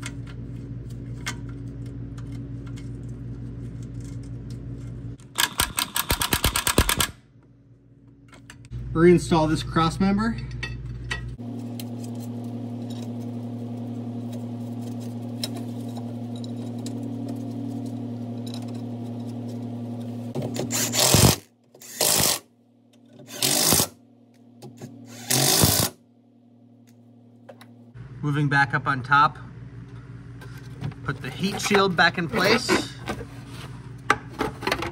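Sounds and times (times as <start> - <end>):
steady low hum: 0.0 - 34.9
impact wrench bursts: 5.3 - 7.2, 20.4 - 22.5, 23.3 - 24.0, 25.1 - 26.0.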